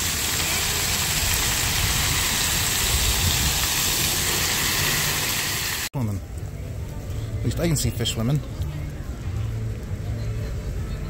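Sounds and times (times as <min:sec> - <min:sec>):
fountain water splattering on paving: 0:00.0 - 0:05.9.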